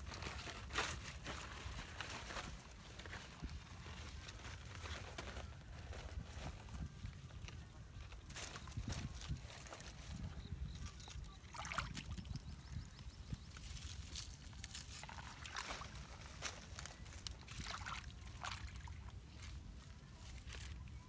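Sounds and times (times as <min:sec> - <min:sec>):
mud squelching: 0:11.3 - 0:12.8, 0:13.5 - 0:19.6
water sloshing: 0:14.8 - 0:16.4, 0:17.3 - 0:19.2.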